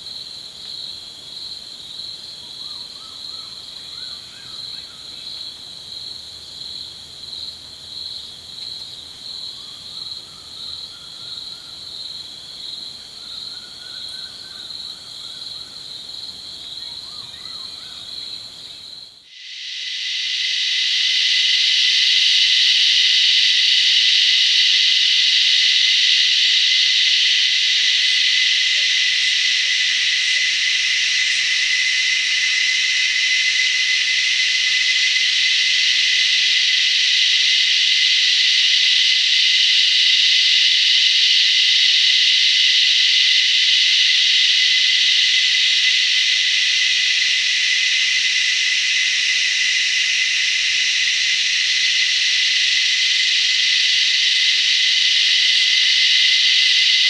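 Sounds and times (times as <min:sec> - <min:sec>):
cicadas buzzing: 0:00.0 - 0:57.0.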